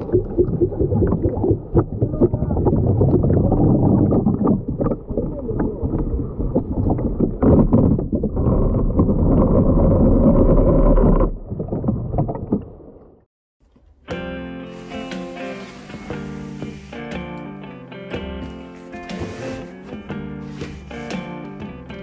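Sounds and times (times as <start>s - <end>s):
music: 13.9s - 22.0s
water rushing over boat bow: 14.7s - 17.3s.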